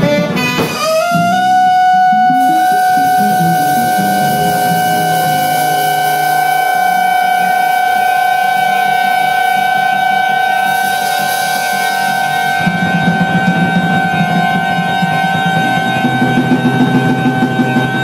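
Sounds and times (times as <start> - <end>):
jazz band playing: 0.0 - 7.7
saxophone and trumpet long note: 0.0 - 11.6.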